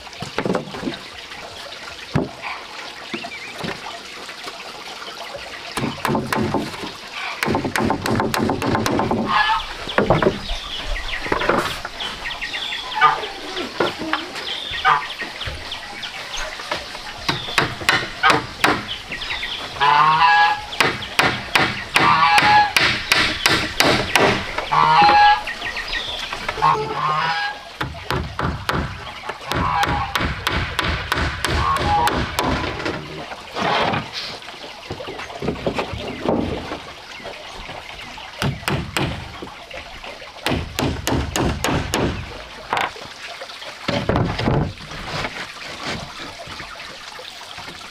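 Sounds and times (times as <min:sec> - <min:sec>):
poultry calling: 0:09.3 - 0:09.8, 0:12.6 - 0:15.2, 0:24.7 - 0:27.7.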